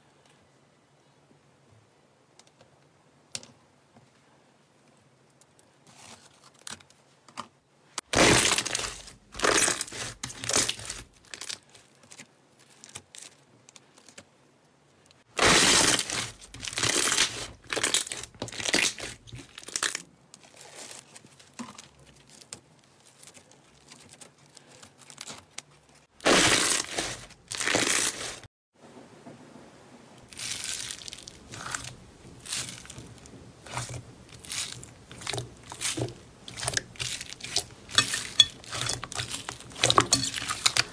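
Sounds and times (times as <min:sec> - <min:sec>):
slime crackling squishes: 0:08.0 - 0:14.2, 0:15.4 - 0:28.5, 0:30.3 - 0:40.9.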